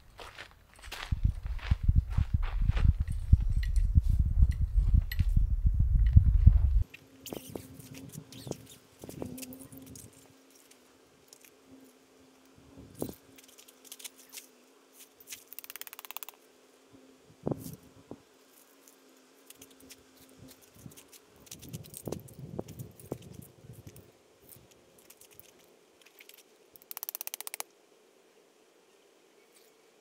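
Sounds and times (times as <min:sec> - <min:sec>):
rattling run of ticks: 0:26.2 - 0:27.6.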